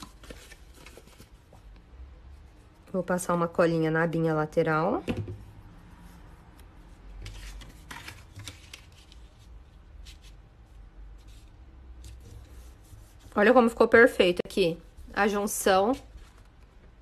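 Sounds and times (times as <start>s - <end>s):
paper rustling and crinkling: 0.0s - 1.7s, 7.2s - 10.4s, 15.9s - 16.7s.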